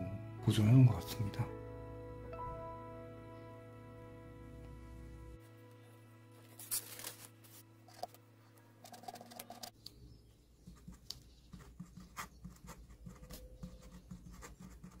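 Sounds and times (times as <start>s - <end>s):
pen scratching on paper: 8.8s - 9.7s, 10.6s - 15.0s.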